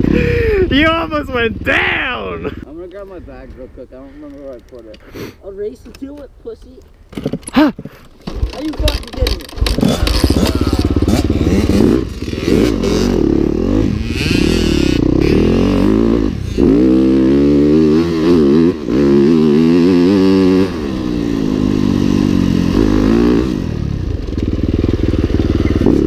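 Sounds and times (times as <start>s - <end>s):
dirt bike engine revving: 8.3s - 26.0s.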